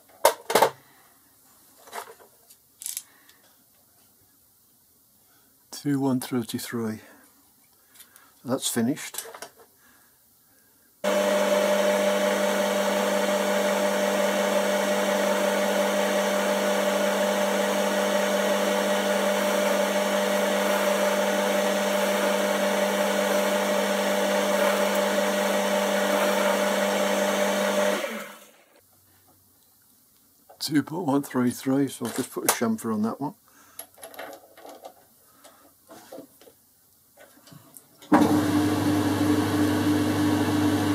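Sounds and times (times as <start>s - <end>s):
metal lathe motor and gear hum: 11.1s - 28.5s.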